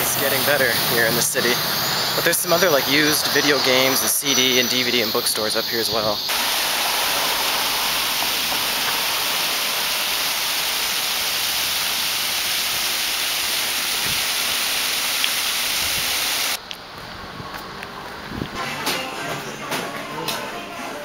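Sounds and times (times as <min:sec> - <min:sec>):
water cascading down stone wall: 0:06.3 - 0:16.6.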